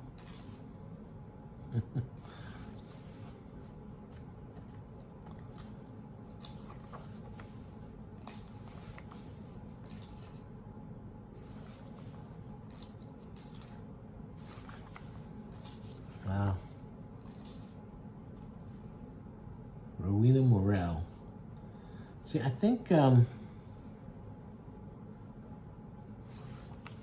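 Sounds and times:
paper pages rustling: 0.0s - 0.6s, 2.4s - 10.4s, 11.4s - 13.8s, 14.4s - 17.8s, 26.2s - 27.0s
low room hum: 0.0s - 27.0s.

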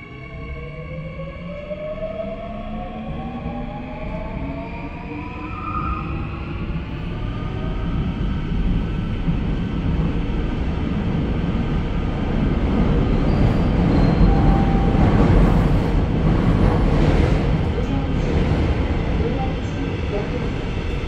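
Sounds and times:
train wheels rumbling on rail: 6.8s - 21.0s.

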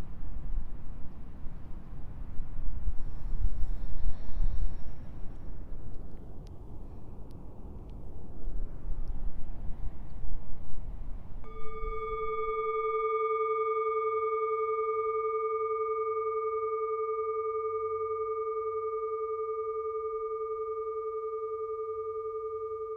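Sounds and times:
wind rumble on microphone: 0.0s - 12.5s
singing bowl ringing: 11.4s - 22.9s.

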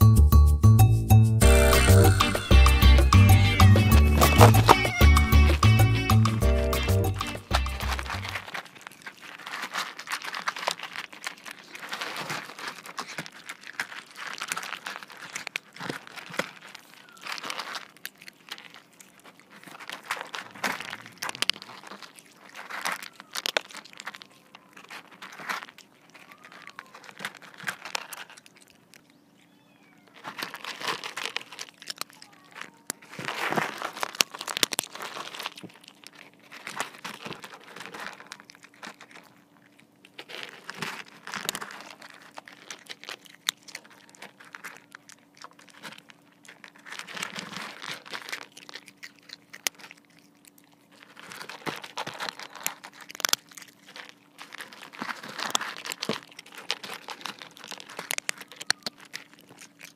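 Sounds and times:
cats crunching dry kibble: 1.4s - 59.9s
pellets clicking against bowl: 1.8s - 8.8s, 51.5s - 59.9s.

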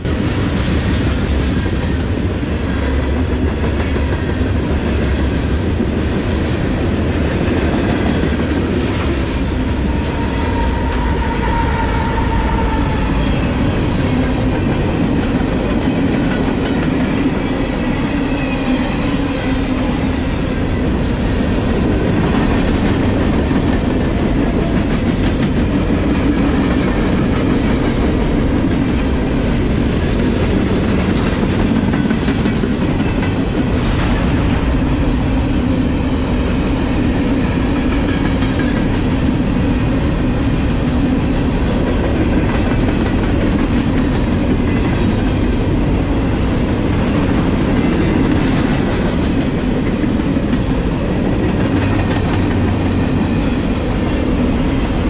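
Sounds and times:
train wheels rumbling on rail: 0.0s - 55.0s
wheels clickety-clack: 22.0s - 34.8s, 41.8s - 45.4s, 46.6s - 53.2s.

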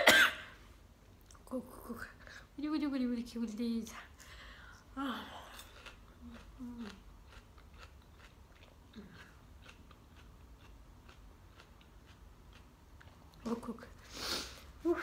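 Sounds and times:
onion crunching while chewed: 5.3s - 13.7s.

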